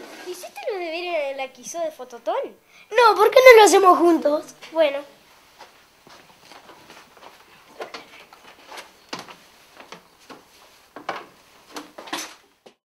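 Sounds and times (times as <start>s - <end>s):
footsteps on wooden staircase: 5.4s - 12.8s.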